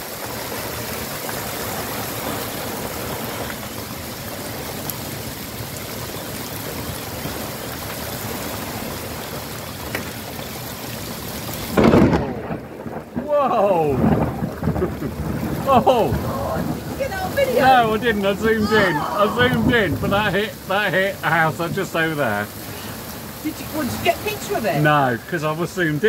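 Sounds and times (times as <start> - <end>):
hail and heavy rain on road: 0.0 - 26.0
loud thunderclap: 11.7 - 21.8.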